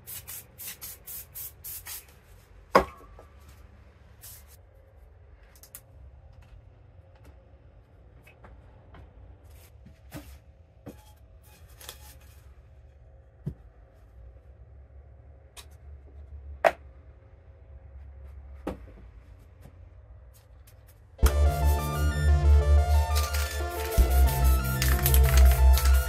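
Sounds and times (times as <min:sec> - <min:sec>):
steady low hum: 0:12.3 - 0:26.0.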